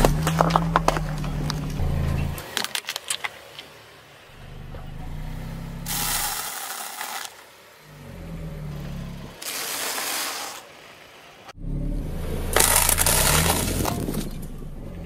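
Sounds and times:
car engine running low: 0.0 - 6.4, 7.6 - 9.5, 10.9 - 15.0
objects crunching under tyre: 0.0 - 8.0, 8.7 - 11.0, 12.4 - 14.6
tyre rolling on asphalt: 0.0 - 11.4.

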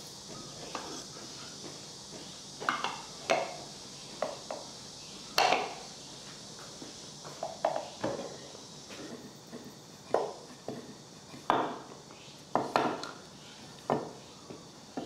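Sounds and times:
faint steady hiss: 0.0 - 15.0
hard objects knocking: 2.1 - 3.6, 5.4 - 5.8.

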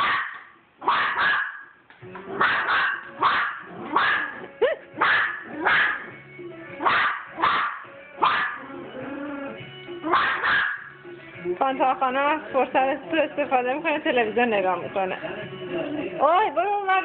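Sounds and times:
small dog yapping: 0.0 - 1.7, 2.4 - 4.4, 5.0 - 6.1, 6.8 - 8.7, 10.1 - 10.9.

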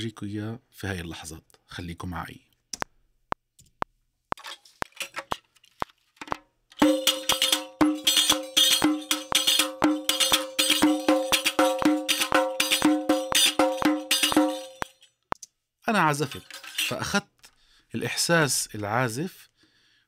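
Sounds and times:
frame tambourine with jingles: 6.8 - 15.1.

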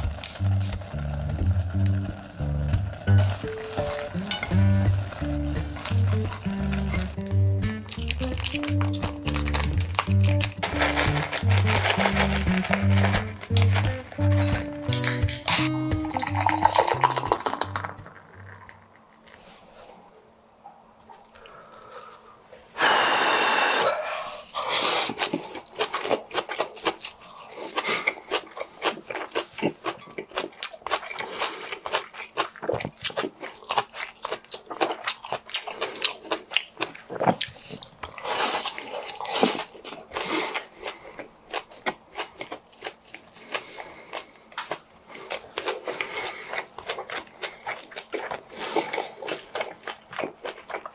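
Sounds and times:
close-miked chewing: 0.0 - 19.4, 24.2 - 50.9
beer pouring into a glass: 0.1 - 8.8, 15.1 - 18.9.

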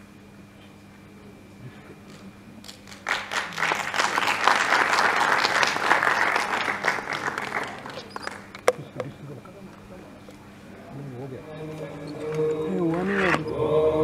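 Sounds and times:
audience applauding: 2.1 - 8.9.

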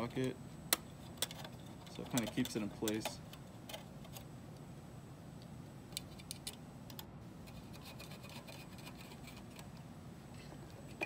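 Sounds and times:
fingers clicking small metal parts: 0.7 - 4.2.

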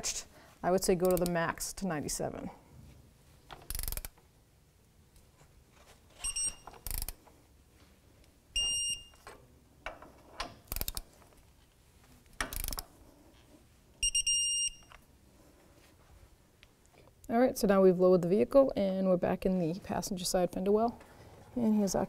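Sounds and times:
torque wrench ratcheting: 3.7 - 4.2, 6.8 - 7.2, 10.7 - 11.0, 12.4 - 12.8
high electronic beep: 14.0 - 14.9.

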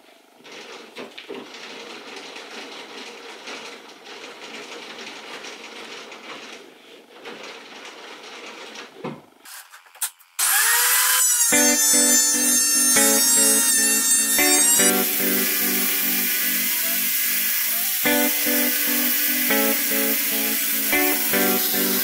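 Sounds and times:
low workshop noise: 0.0 - 22.0
music with repeated notes: 11.6 - 22.0.

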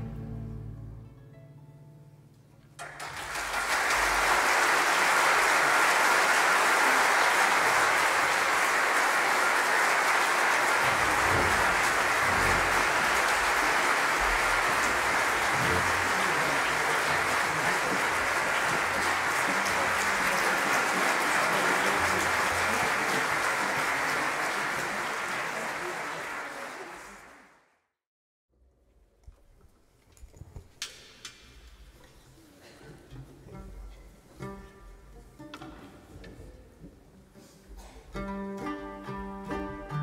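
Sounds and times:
audience applauding: 2.8 - 27.7.

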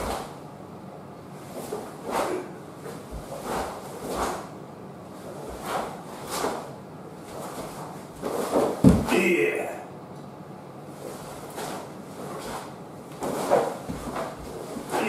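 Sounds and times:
bare feet on wooden floor: 2.8 - 4.5, 5.2 - 9.2, 11.0 - 15.0.

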